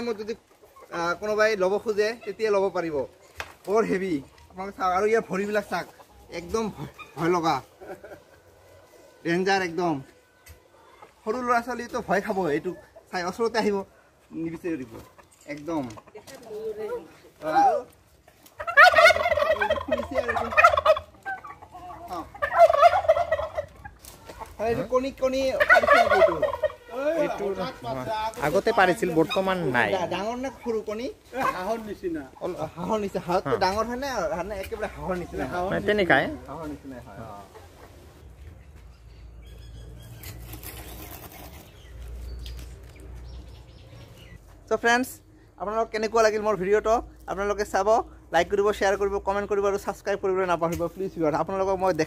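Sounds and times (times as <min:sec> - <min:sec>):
turkeys gobbling: 0:00.0 - 0:41.8, 0:46.3 - 0:52.0
turkeys drumming low rumble: 0:18.2 - 0:24.0, 0:25.2 - 0:26.9
feathers rustling: 0:22.0 - 0:33.4.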